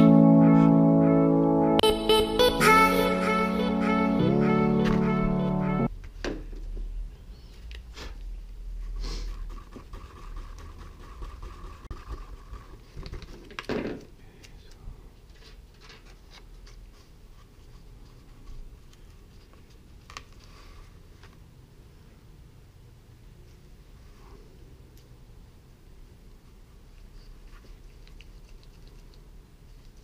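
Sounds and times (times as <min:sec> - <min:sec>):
small clicks and scratches: 0:27.4 - 0:30.0.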